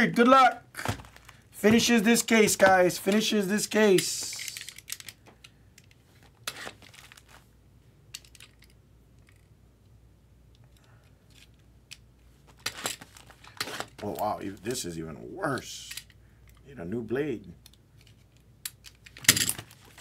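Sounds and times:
plastic wrap rustling: 0.8 - 2.0, 6.1 - 7.5, 12.5 - 14.3.

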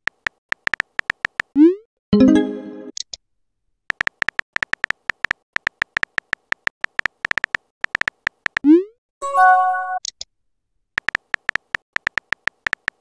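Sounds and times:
keyboard tap clicks: 3.9 - 8.6, 11.0 - 13.0.

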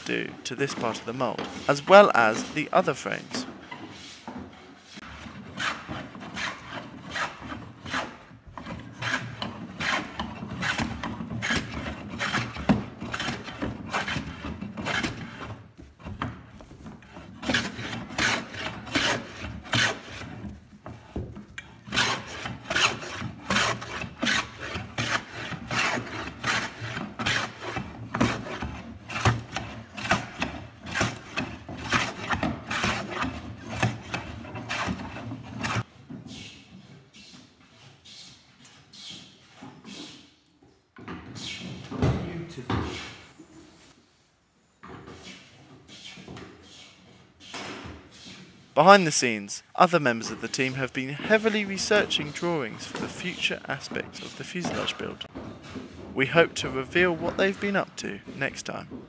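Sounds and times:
hand plane shaving wood: 0.0 - 35.9, 50.0 - 59.0.

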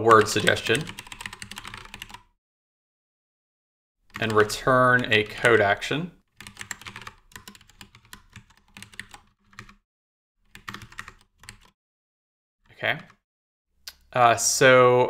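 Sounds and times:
keyboard typing: 0.0 - 2.3, 4.1 - 5.6, 6.3 - 9.8, 10.4 - 11.8.

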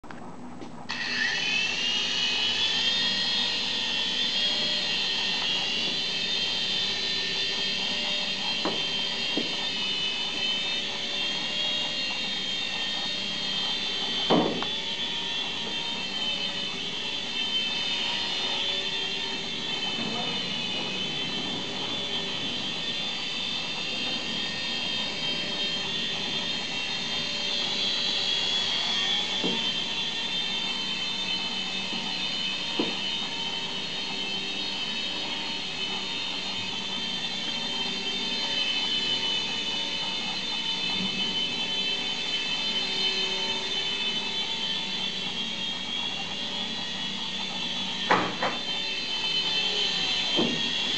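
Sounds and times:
toy helicopter rotor whine: 0.8 - 50.9.

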